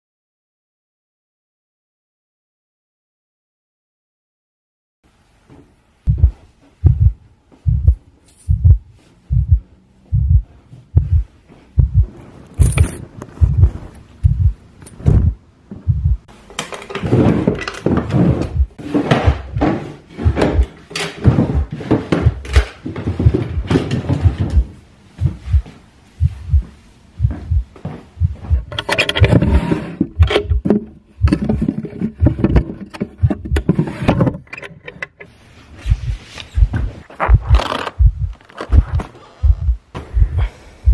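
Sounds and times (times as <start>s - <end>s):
heartbeat thumps: 6.1s - 16.3s, 18.2s - 33.8s, 35.8s - 40.9s
rummaging through clothes and drawers: 12.0s - 14.2s, 14.8s - 15.4s, 16.3s - 25.6s, 28.1s - 40.2s.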